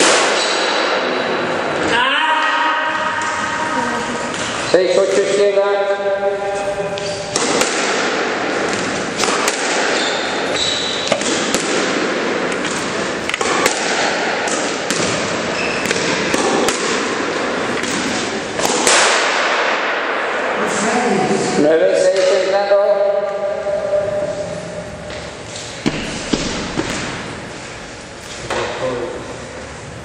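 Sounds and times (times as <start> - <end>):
noisy hall background: 0.0 - 30.0
shoes squeaking on court floor: 6.4 - 7.4, 9.8 - 11.5, 15.4 - 16.4
squash ball knocks: 7.3 - 10.0, 11.0 - 19.8.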